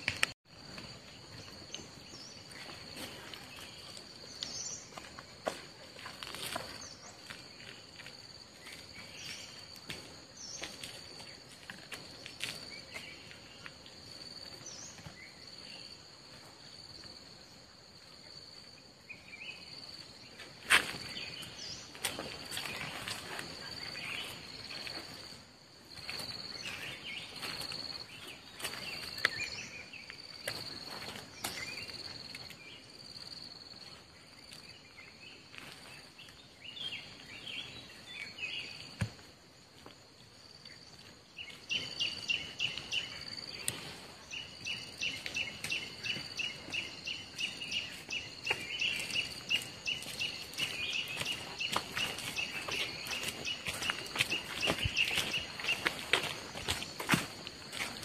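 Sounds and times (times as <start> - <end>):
insects trilling: 0.0 - 58.0.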